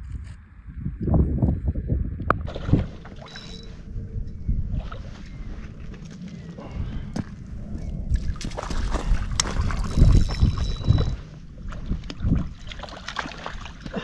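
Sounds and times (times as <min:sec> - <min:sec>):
fish splashing in water: 0:08.2 - 0:14.0.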